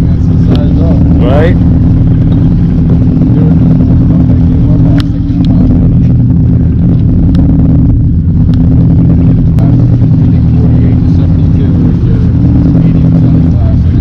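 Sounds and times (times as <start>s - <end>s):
boat engine droning: 0.0s - 14.0s
sharp ticks: 8.4s - 8.7s.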